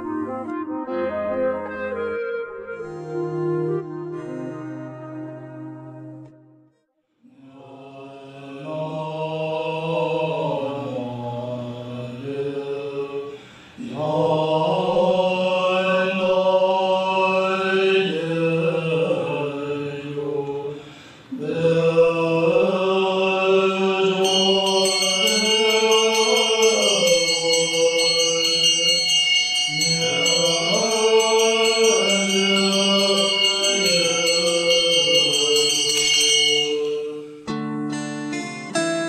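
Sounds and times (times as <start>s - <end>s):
monks chanting in unison: 7.2s - 29.0s, 29.7s - 37.4s
small hand bell ringing: 24.2s - 37.1s.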